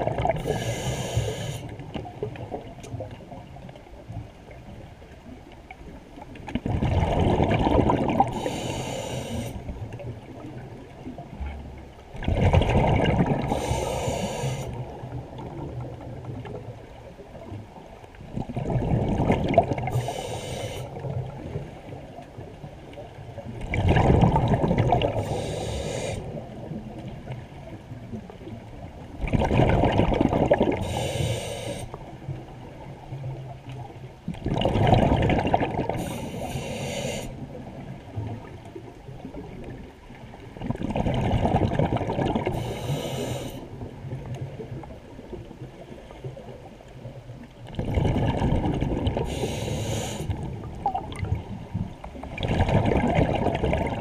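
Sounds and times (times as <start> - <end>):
regulator hiss: 0.4 - 1.7, 8.4 - 9.6, 13.6 - 14.8, 20.0 - 20.9, 25.2 - 26.2, 30.8 - 31.9, 36.0 - 37.4, 42.6 - 43.6, 49.3 - 50.3
diver exhaling bubbles underwater: 6.6 - 8.5, 12.2 - 14.6, 18.4 - 20.2, 23.6 - 26.3, 29.2 - 31.0, 34.4 - 37.2, 40.6 - 43.5, 47.7 - 51.5, 52.2 - 54.0.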